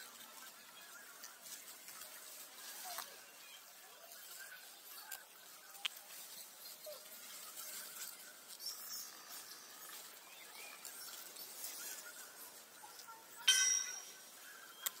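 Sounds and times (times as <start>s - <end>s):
high-pitched animal call: 13.4s - 14.2s.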